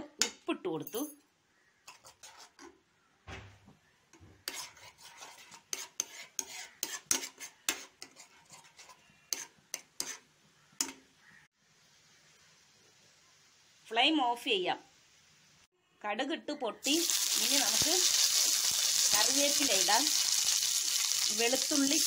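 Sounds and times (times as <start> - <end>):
spoon scraping a pan: 1.8 - 2.8, 4.4 - 11.1.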